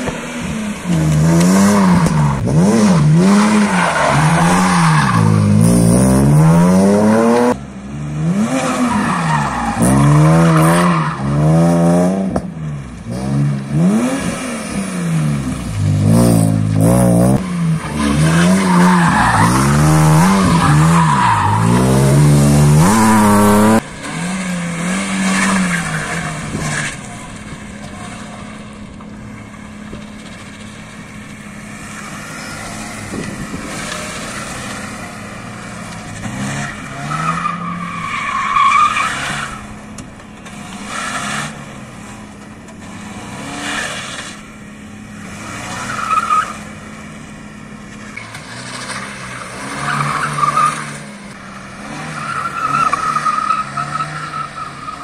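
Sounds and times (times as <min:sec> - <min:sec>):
car engine revving hard: 0:00.0 - 0:12.4, 0:13.1 - 0:27.0.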